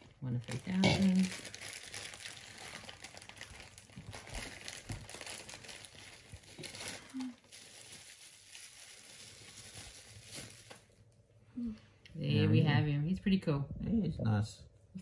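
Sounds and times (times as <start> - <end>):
plastic wrapping crinkling: 0.0 - 11.2.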